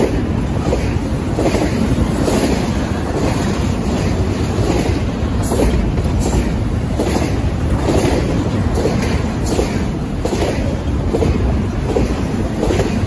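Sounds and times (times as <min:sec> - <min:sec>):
steel wheels rumbling on rails: 0:00.0 - 0:13.0
wheel clacks: 0:00.0 - 0:13.0.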